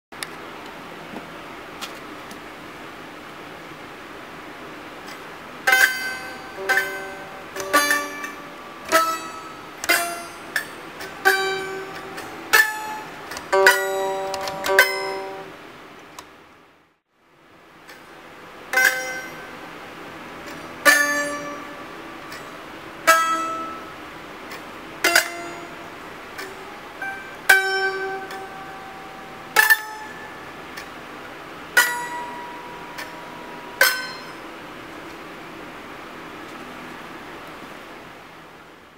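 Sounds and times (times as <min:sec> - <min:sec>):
plucked zither melody: 0:05.0 - 0:15.6, 0:17.8 - 0:37.1.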